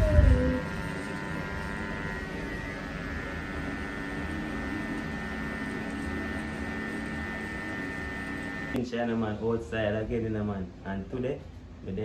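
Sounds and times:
electric hair clippers buzzing: 0:00.0 - 0:08.8.

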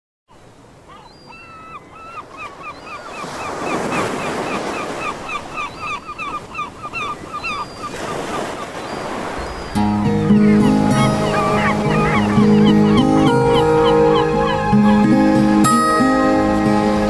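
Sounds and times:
birds calling: 0:00.3 - 0:17.0
ocean surf: 0:00.3 - 0:17.0.

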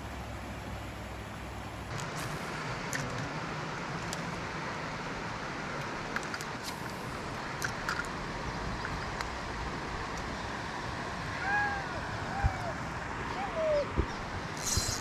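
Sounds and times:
steady outdoor rushing noise: 0:00.0 - 0:15.0
rising and falling call: 0:11.4 - 0:14.0.

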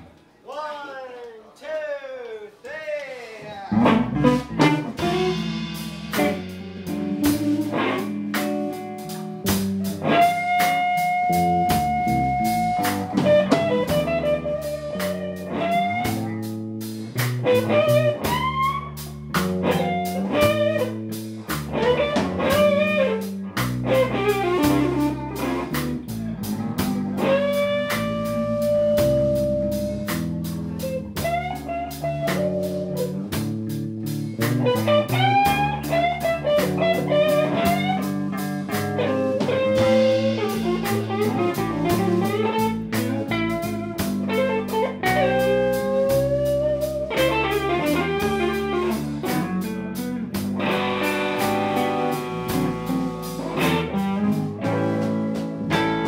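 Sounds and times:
blues band playing: 0:03.4 - 0:56.0.

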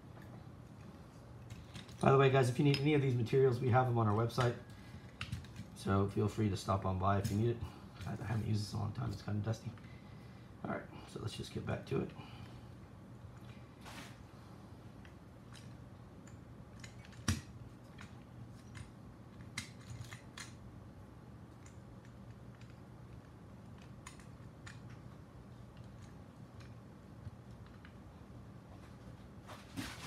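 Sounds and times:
steady low hum: 0:00.0 - 0:30.0
small clicks and taps: 0:21.5 - 0:28.0.

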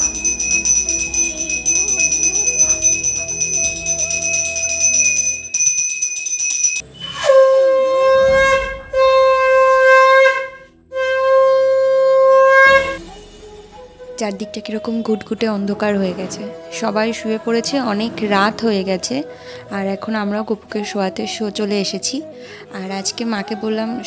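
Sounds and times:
hand bell ringing: 0:00.0 - 0:06.8.

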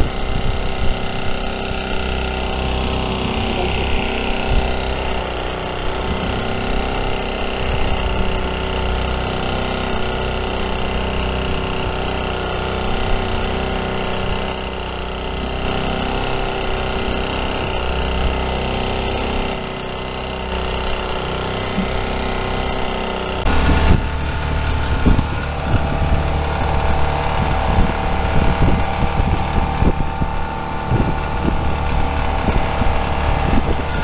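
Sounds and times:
boat engine running: 0:00.0 - 0:34.0.

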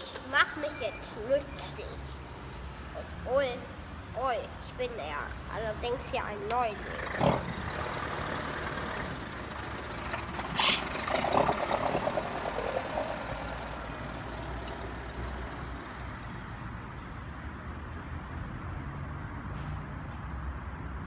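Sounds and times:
heavy vehicle engine running: 0:06.5 - 0:16.5
sharp burst of hiss: 0:10.6 - 0:10.9.

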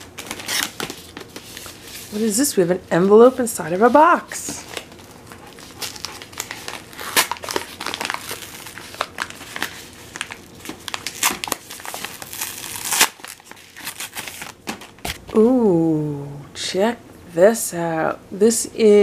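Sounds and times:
paper mailer crinkling and tearing: 0:00.0 - 0:02.2, 0:04.6 - 0:15.2.

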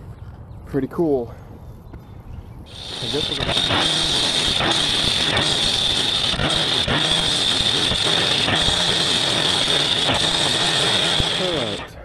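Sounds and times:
saw cutting concrete: 0:02.7 - 0:12.0.

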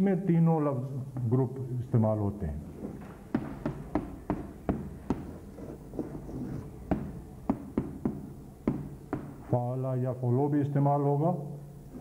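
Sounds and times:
chalk tapping on blackboard: 0:02.8 - 0:09.5.

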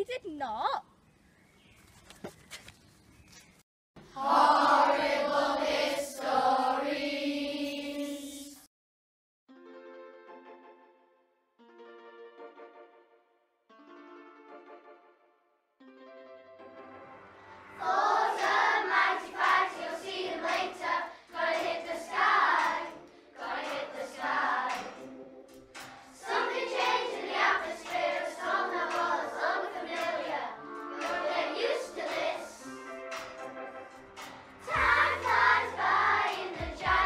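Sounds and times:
children singing: 0:04.1 - 0:08.7, 0:17.8 - 0:33.3, 0:34.6 - 0:37.0.

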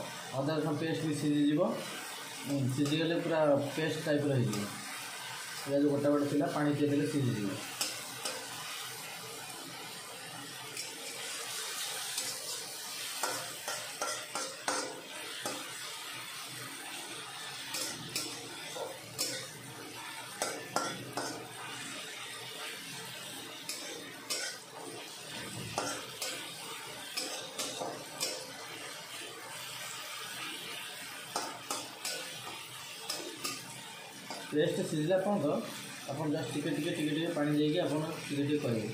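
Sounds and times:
frying sizzle: 0:00.0 - 0:38.9
metal spatula scraping a pan: 0:07.6 - 0:09.0, 0:10.6 - 0:34.9.

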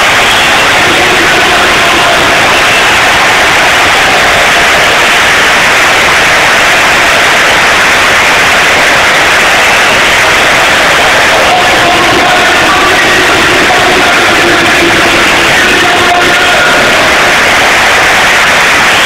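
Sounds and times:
stadium crowd cheering and clapping: 0:00.0 - 0:19.0.

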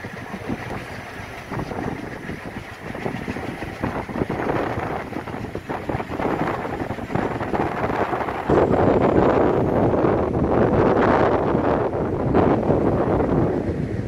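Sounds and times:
train rumble: 0:00.0 - 0:14.0
wind on microphone: 0:00.0 - 0:14.0.

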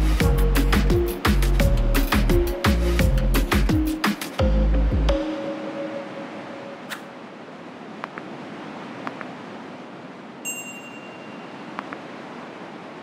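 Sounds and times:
ocean surf: 0:00.1 - 0:04.5, 0:05.1 - 0:13.0
bright ringing chime: 0:10.4 - 0:11.6.

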